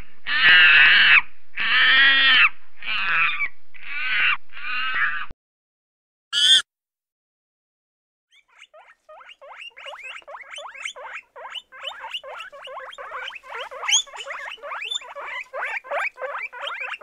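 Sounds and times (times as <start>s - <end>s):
guinea pigs squeaking: 8.3s - 17.0s.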